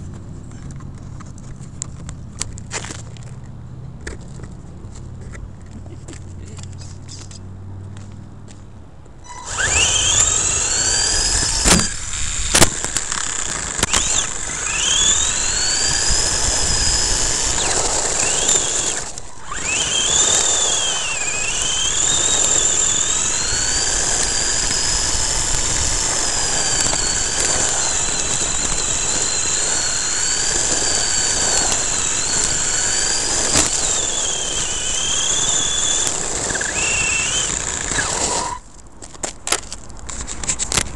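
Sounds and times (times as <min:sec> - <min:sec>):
electric motor whining: 0:09.2 - 0:38.7.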